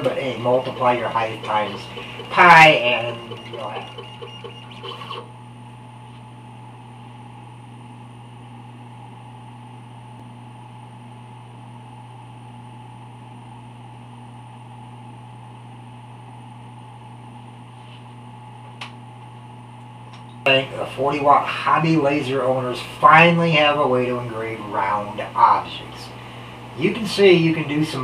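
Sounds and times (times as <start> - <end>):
laser engraver head moving: 0.0 - 5.3
machine low hum: 0.0 - 28.0.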